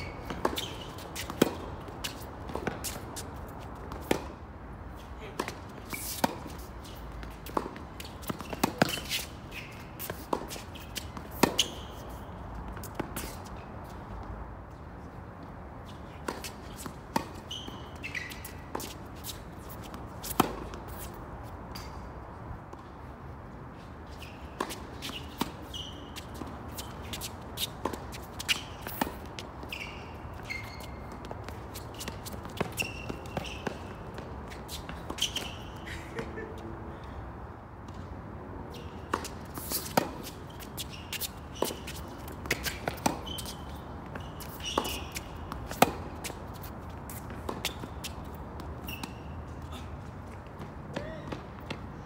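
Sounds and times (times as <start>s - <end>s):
rackets striking tennis ball: 0.0s - 4.4s, 5.3s - 12.1s, 39.1s - 49.2s
tennis ball bouncing: 0.0s - 4.5s, 5.3s - 13.5s, 16.2s - 22.0s, 24.4s - 36.3s, 38.9s - 49.6s
sneakers squeaking on court: 0.0s - 23.0s, 23.8s - 36.6s, 37.9s - 52.0s.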